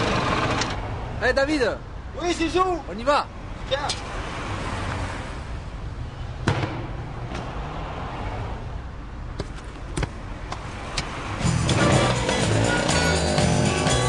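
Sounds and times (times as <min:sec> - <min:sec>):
football thumping against feet: 0:09.4 - 0:10.6.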